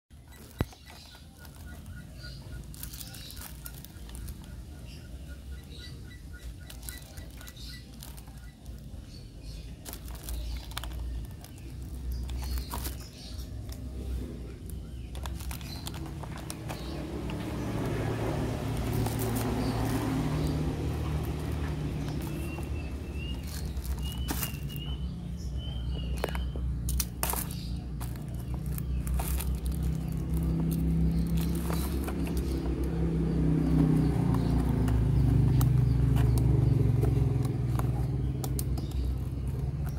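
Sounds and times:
bird chirping: 0.1s - 39.9s
vehicle engine running: 0.1s - 39.9s
cardboard and plastic packaging handled: 0.3s - 4.6s, 6.7s - 9.0s, 9.6s - 17.0s, 18.7s - 20.1s, 20.8s - 24.9s, 26.2s - 32.7s.

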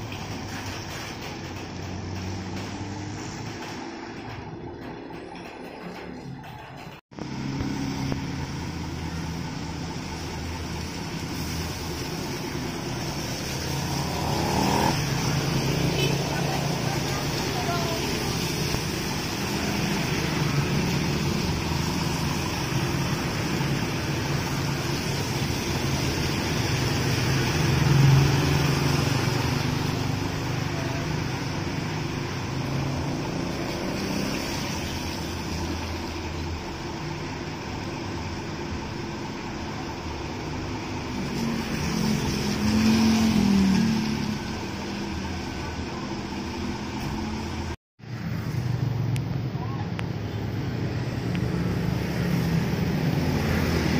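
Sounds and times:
traffic hiss on wet road: 0.0s - 4.0s, 7.2s - 53.9s
diesel bus engine idling: 7.0s - 33.3s, 34.5s - 41.2s.

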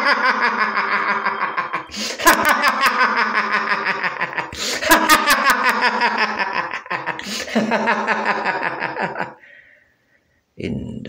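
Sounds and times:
sinister laughter: 0.0s - 9.4s.

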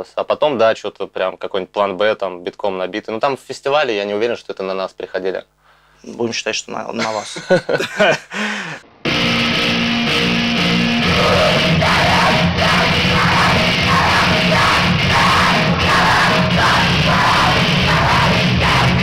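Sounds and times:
loud distorted metal music: 9.1s - 19.0s.

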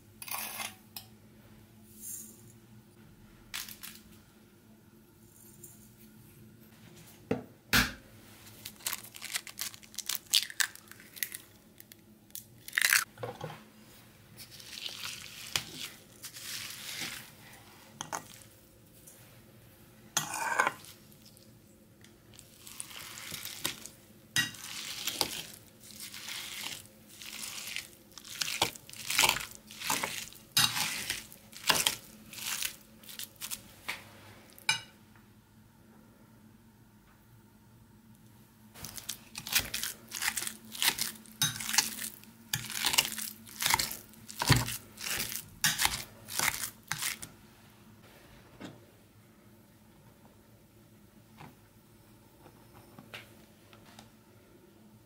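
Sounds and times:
scraping and squishing curd: 14.0s - 18.7s, 20.1s - 21.6s, 22.2s - 34.6s, 38.8s - 47.4s.

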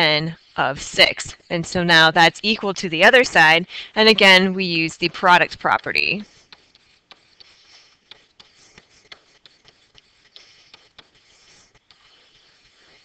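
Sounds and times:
stylus tapping and scratching: 0.0s - 13.0s.

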